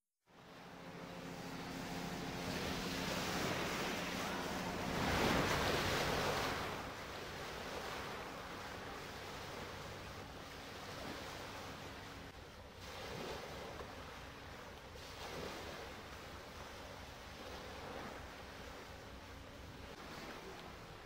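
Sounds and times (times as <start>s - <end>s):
choppy sea water: 0.2s - 21.0s
wind on microphone: 1.3s - 14.4s.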